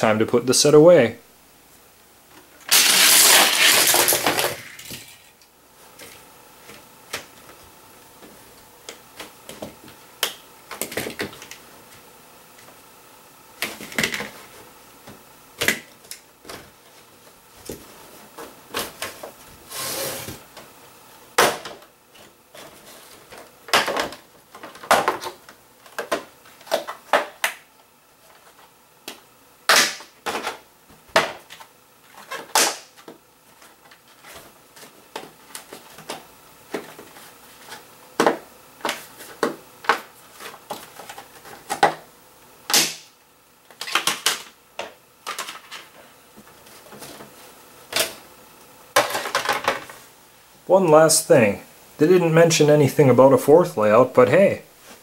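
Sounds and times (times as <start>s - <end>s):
plastic toy pieces clattering: 2.7s - 5.3s, 45.3s - 45.9s
plastic scraping slide: 19.7s - 20.4s.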